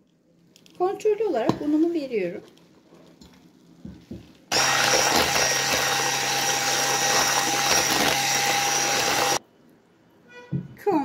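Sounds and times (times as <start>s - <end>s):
electric hand mixer running: 4.5s - 9.4s.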